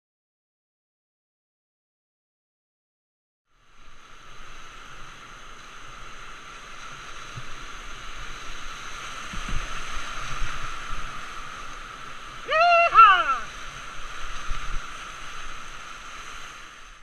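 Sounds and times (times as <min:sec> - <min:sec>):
rushing whitewater: 0:03.6 - 0:17.0.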